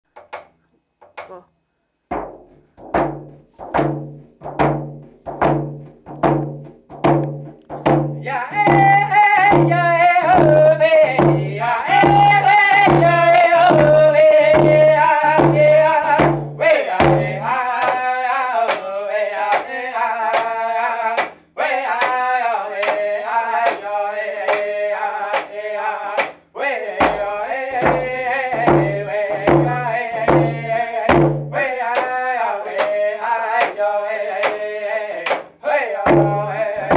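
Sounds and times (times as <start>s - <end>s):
hand drums beating: 2.1s - 18.0s, 27.0s - 32.1s, 36.0s - 36.9s
men singing in high voices: 8.2s - 36.9s.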